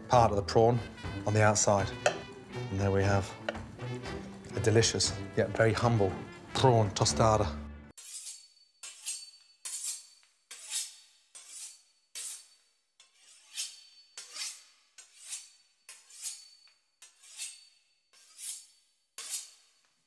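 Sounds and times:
knife sawing through crisp pastry: 8.0s - 19.8s.

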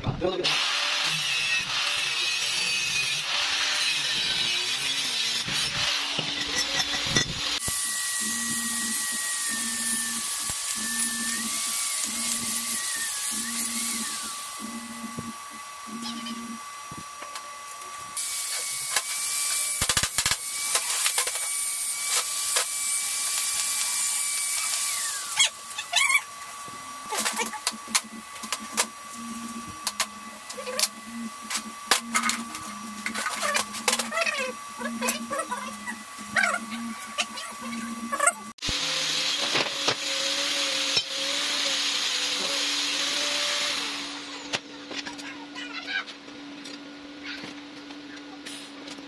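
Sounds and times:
rotary tool whining on metal: 0.4s - 45.3s
faint steady whine: 26.7s - 38.2s
low hum: 26.7s - 38.5s.

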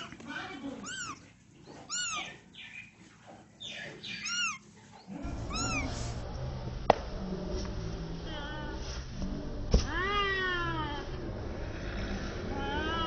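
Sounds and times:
kitten mewing: 0.8s - 1.2s, 1.8s - 2.4s, 4.2s - 4.6s, 5.2s - 6.2s
steady low rumble: 5.2s - 13.0s.

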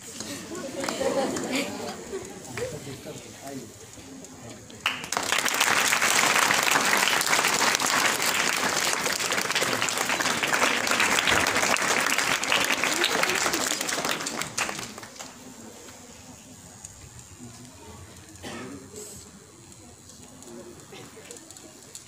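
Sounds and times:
audience applauding: 0.1s - 2.9s, 4.7s - 15.7s.

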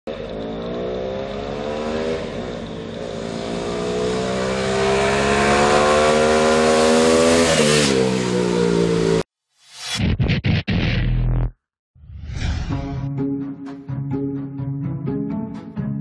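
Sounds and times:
motorcycle accelerating past: 0.1s - 9.2s.

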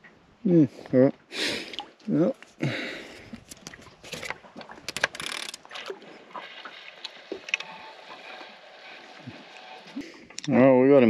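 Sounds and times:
fishing reel clicking: 4.9s - 5.6s.

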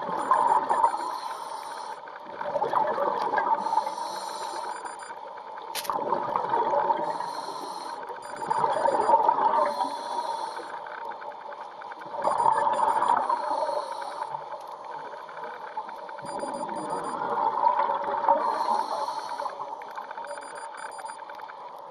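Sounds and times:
underwater exhaled air bubbles: 0.0s - 1.2s, 2.0s - 4.9s, 5.5s - 20.9s
regulator breathing hiss: 9.7s - 10.8s, 13.4s - 14.3s, 18.5s - 19.5s.

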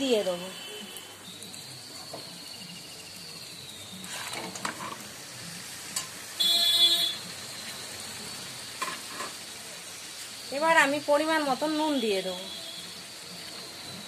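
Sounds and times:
meat sizzling in a wok: 0.0s - 14.0s.

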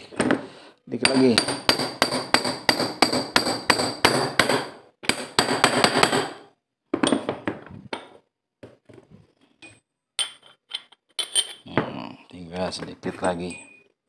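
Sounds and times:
hammer striking metal: 1.0s - 6.4s.

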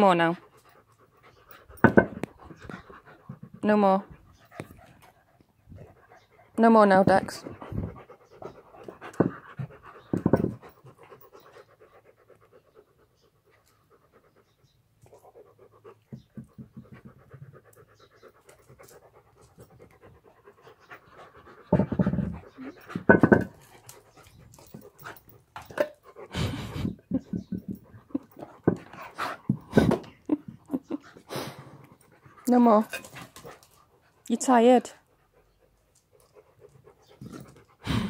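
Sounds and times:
dogs panting: 0.1s - 38.0s.

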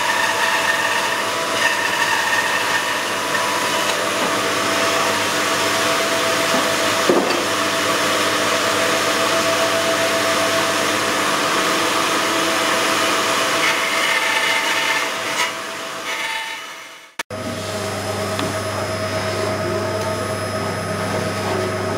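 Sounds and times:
band saw cutting wood: 0.0s - 17.2s.

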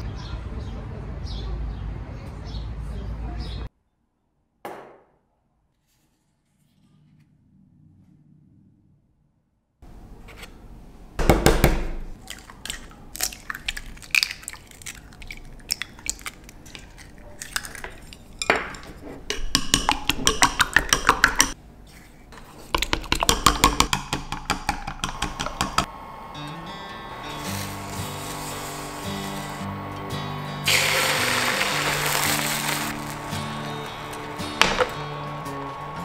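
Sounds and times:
eggs cracking: 12.2s - 21.6s, 22.6s - 25.9s, 30.7s - 35.1s.

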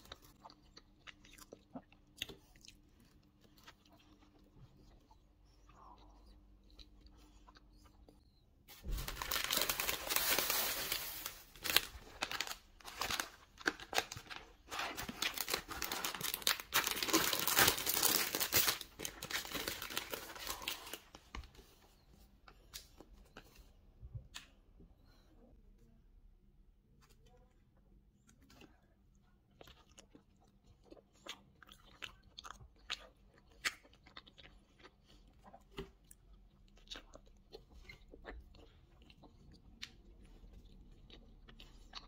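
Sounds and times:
plastic wrapper crinkling: 8.7s - 21.5s.

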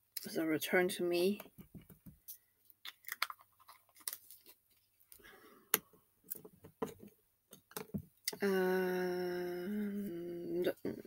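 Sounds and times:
person humming: 8.3s - 11.0s.

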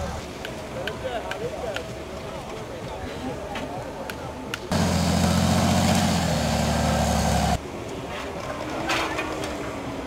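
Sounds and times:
engine running loud: 4.7s - 7.6s
faint engine: 4.7s - 7.6s.

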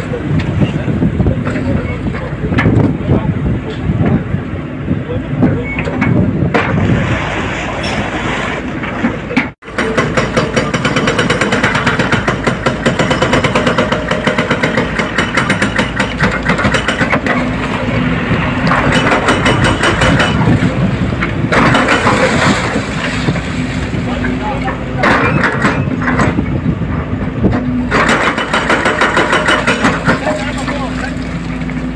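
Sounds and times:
excavator diesel engine under load: 8.7s - 31.9s
demolition clattering and falling rubble: 8.8s - 31.9s.

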